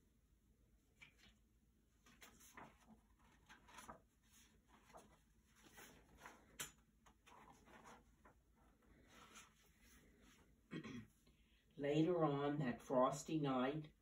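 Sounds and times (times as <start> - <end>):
book pages turning: 0.8 - 10.4.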